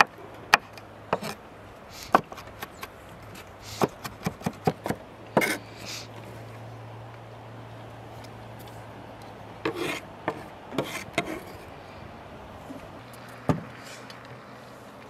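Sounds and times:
knife scraping on cutting board: 0:09.7 - 0:11.7.

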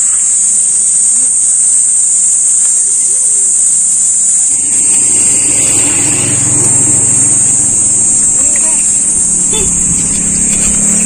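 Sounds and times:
high-pitched insect drone: 0:00.0 - 0:11.0
vehicle engine rumble passing: 0:04.0 - 0:11.0.

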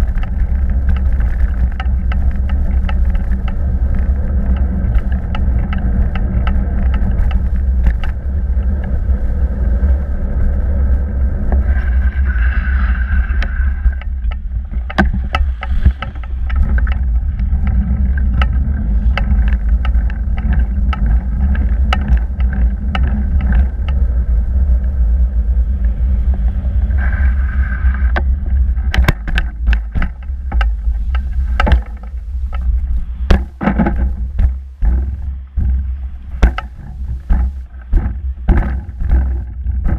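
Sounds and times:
bike knocks and rattles: 0:00.0 - 0:09.1, 0:13.8 - 0:26.4, 0:28.1 - 0:39.9
tyres rumbling on tarmac: 0:00.0 - 0:39.9
wind buffeting microphone: 0:00.0 - 0:39.9.

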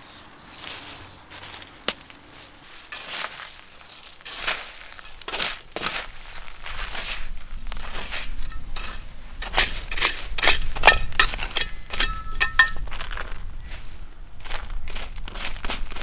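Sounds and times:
gravel rattling: 0:00.0 - 0:16.0
trowel scraping gravel: 0:00.6 - 0:13.4.

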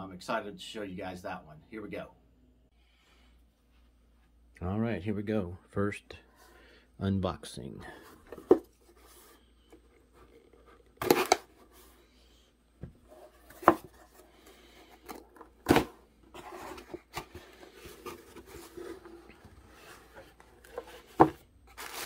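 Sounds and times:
cardboard rustling: 0:13.0 - 0:22.0.

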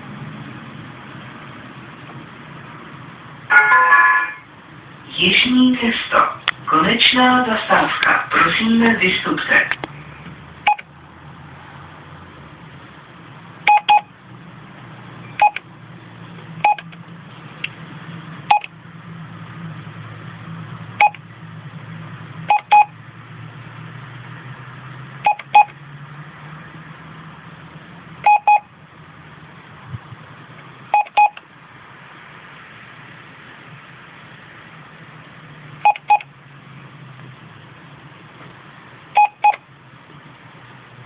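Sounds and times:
keypad beeps: 0:10.7 - 0:10.9, 0:13.7 - 0:14.1, 0:15.4 - 0:15.6, 0:16.6 - 0:17.0, 0:18.5 - 0:18.7, 0:21.0 - 0:21.2, 0:22.5 - 0:22.9, 0:25.2 - 0:25.8, 0:28.2 - 0:28.7, 0:30.9 - 0:31.4, 0:35.8 - 0:36.3, 0:39.2 - 0:39.6.

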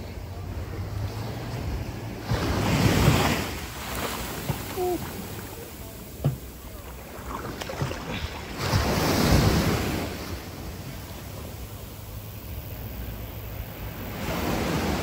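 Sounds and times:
sea waves washing on sand: 0:00.0 - 0:15.0.

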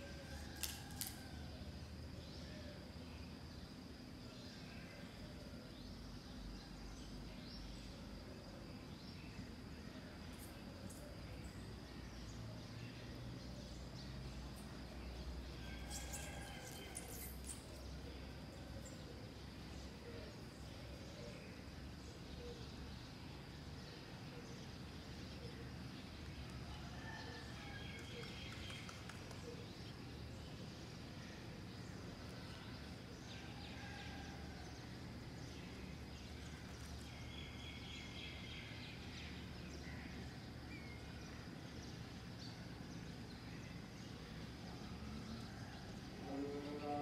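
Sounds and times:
faint chirping calls: 0:02.1 - 0:47.0.

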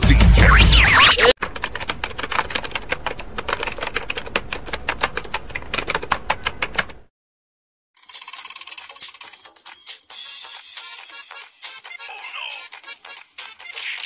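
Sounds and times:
fast sharp clicks: 0:01.4 - 0:07.0
music: 0:09.3 - 0:14.0.

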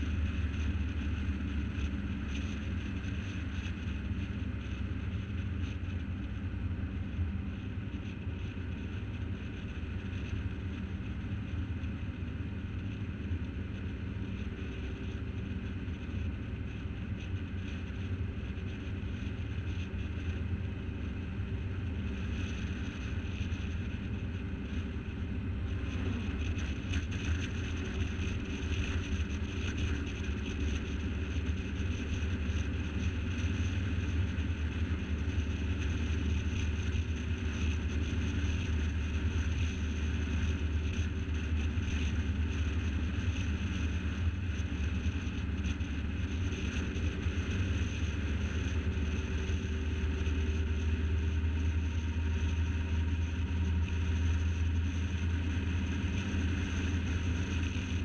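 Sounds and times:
car engine and tyre drone: 0:00.0 - 0:58.0.

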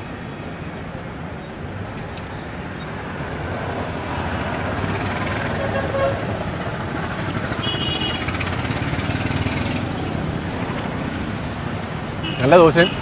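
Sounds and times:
passing vehicles: 0:00.0 - 0:13.0.

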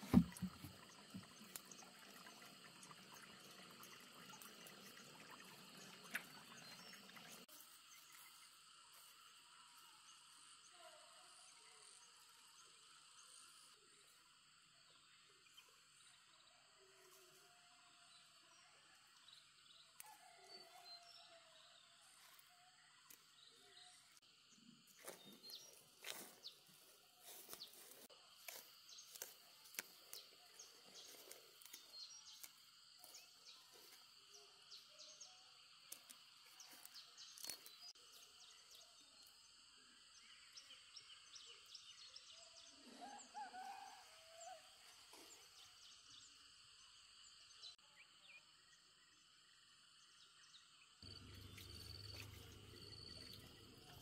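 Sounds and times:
insects droning: 0:00.0 - 0:54.0
twigs crackling and snapping: 0:27.3 - 0:30.2, 0:35.9 - 0:37.7.

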